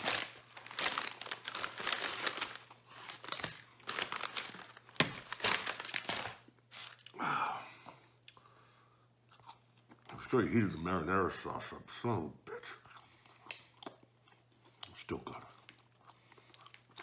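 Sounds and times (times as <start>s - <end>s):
paper bag crinkling: 0.0s - 7.0s.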